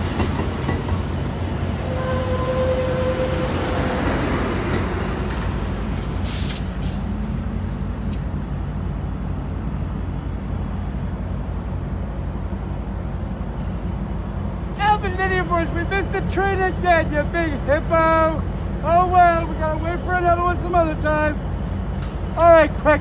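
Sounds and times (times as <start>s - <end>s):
diesel hum: 0.0s - 23.0s
train rolling past: 0.0s - 23.0s
sharp air hisses: 6.1s - 7.0s.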